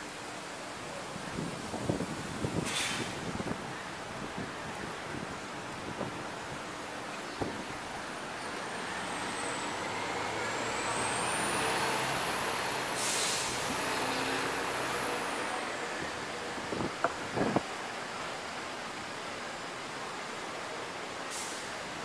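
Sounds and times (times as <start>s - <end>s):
short hiss of air: 2.6s - 3.3s, 12.9s - 13.7s, 21.3s - 21.8s.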